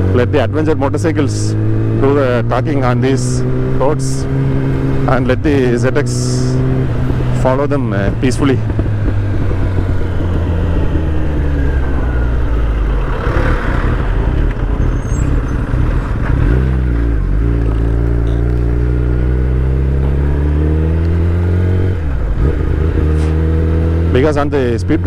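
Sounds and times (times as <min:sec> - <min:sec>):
motorcycle engine running: 0:00.0 - 0:25.0
wind noise: 0:06.6 - 0:16.8.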